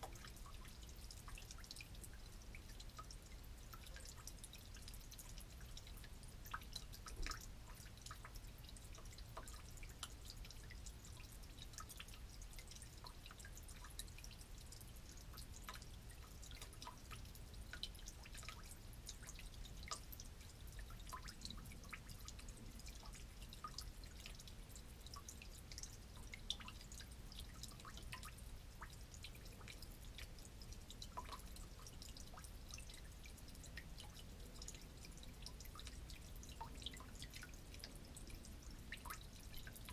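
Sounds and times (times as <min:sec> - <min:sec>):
fuel dripping into liquid: 0:00.0 - 0:39.9.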